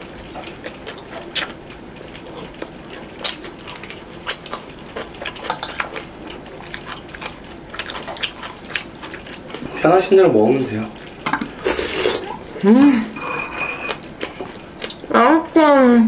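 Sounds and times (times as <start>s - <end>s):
cutlery clinking on plates: 13.2s - 14.1s.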